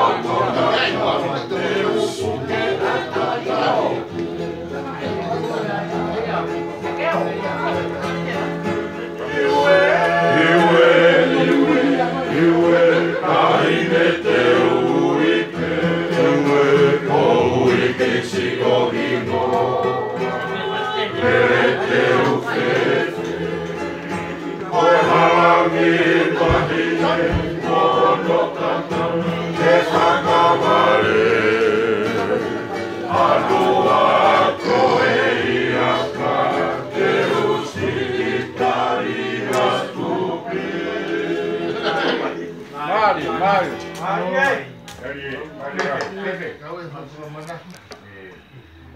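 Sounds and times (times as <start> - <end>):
men singing in harmony: 0.0 - 4.2, 9.2 - 43.6
ukulele: 0.0 - 42.8
strummed acoustic guitar: 0.0 - 45.6.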